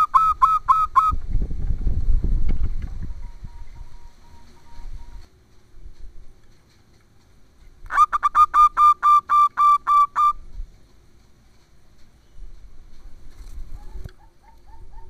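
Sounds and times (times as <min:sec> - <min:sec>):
dove calling: 0:00.0 - 0:01.2, 0:03.0 - 0:05.3, 0:07.9 - 0:10.5, 0:13.6 - 0:15.0.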